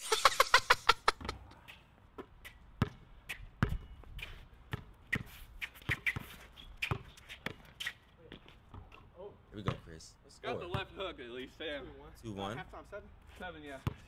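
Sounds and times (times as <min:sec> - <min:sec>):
basketball bouncing on hard court: 0:02.2 - 0:04.0, 0:04.6 - 0:07.7, 0:13.8 - 0:14.0.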